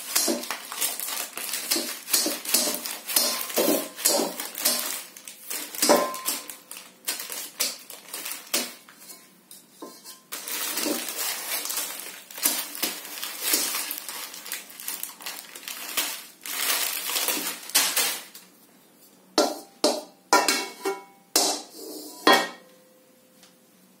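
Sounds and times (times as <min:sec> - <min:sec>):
plastic packet rustling: 0:00.0 - 0:09.0, 0:10.3 - 0:18.6
spatula clanking in steel wok: 0:01.7 - 0:05.0, 0:19.4 - 0:22.7.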